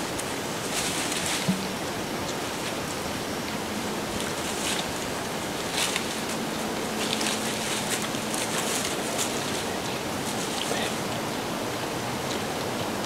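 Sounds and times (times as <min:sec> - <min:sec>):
dry leaves rustling: 0:00.0 - 0:13.0
steady rushing outdoor noise: 0:00.0 - 0:13.0.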